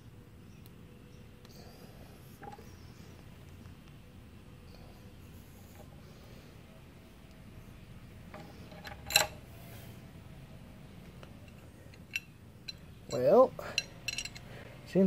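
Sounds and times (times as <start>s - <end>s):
wrench clinking on metal bolt: 8.4s - 9.4s, 11.5s - 14.5s.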